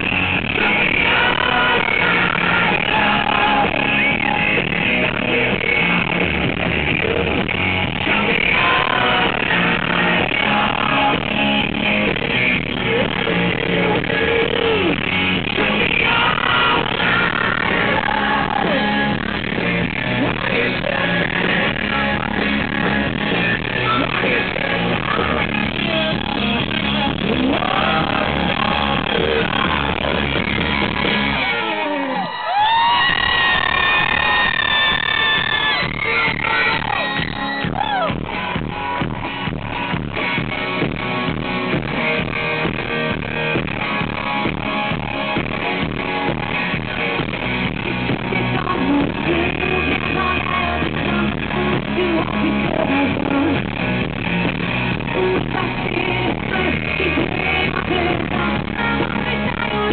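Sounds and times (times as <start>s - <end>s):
live pop-rock band playing: 0.0s - 59.9s
woman singing into a microphone: 12.6s - 30.0s, 48.1s - 53.8s, 54.9s - 59.9s.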